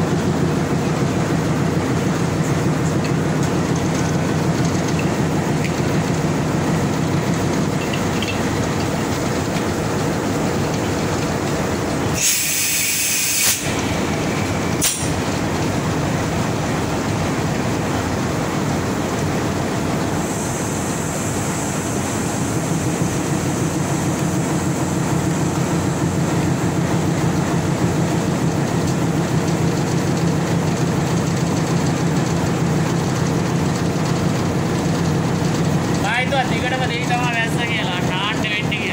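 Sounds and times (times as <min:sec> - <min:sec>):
low engine hum: 0:00.0 - 0:12.2
diesel locomotive running: 0:00.0 - 0:38.9
air hose hiss: 0:12.1 - 0:13.8, 0:14.8 - 0:15.2.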